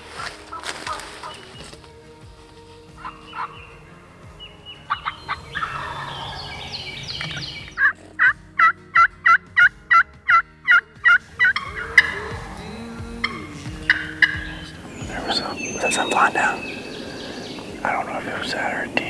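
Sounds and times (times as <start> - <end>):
turkey gobbling: 0.0 - 19.0
turkey yelps: 3.0 - 3.8, 4.7 - 12.6.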